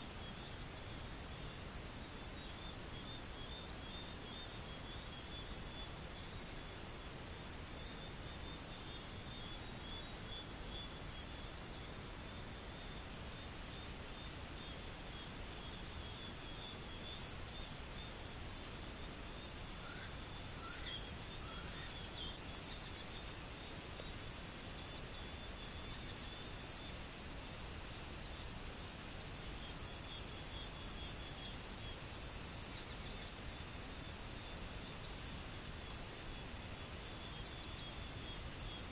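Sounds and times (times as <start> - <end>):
insects chirping in pulses: 0.0 - 38.9.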